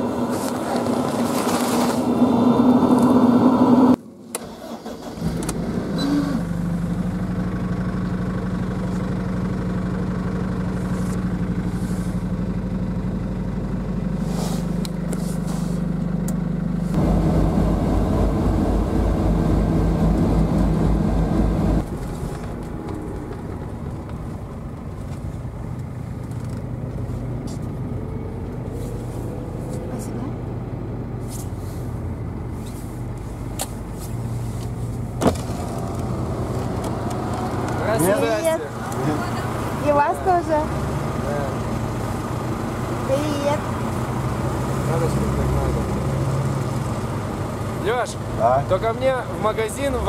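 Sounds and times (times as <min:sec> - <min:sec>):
van engine running: 0:00.0 - 0:50.0
loud sound cutting off: 0:16.9 - 0:26.8.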